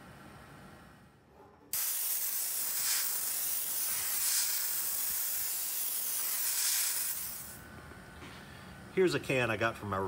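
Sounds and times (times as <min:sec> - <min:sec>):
compressed air hissing: 0:01.7 - 0:07.6.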